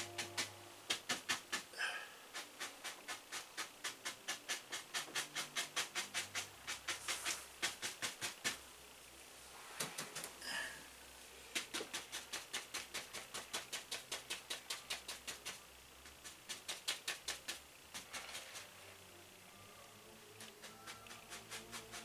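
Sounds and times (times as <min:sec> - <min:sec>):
brush tapping on canvas: 0:00.0 - 0:08.6, 0:11.5 - 0:18.7.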